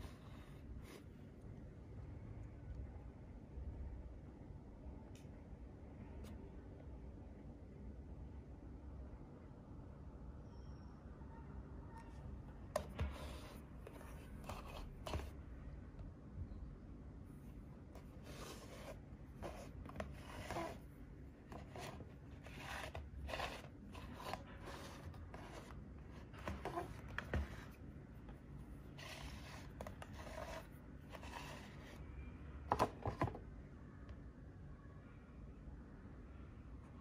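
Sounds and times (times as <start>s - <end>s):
plastic scraping on table: 12.7s - 15.4s, 17.9s - 20.8s, 21.4s - 27.8s, 29.0s - 32.0s
fingers rubbing plastic: 18.0s - 20.9s, 21.5s - 27.8s, 29.0s - 32.0s.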